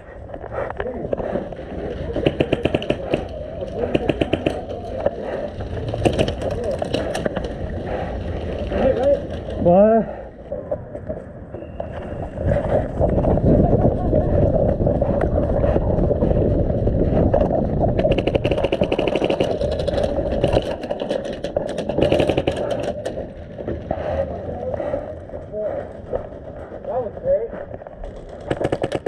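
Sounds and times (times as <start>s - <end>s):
steady low rumble: 0.0s - 29.0s
airsoft guns firing: 2.1s - 5.1s, 5.8s - 7.5s, 18.0s - 23.2s, 28.0s - 29.0s.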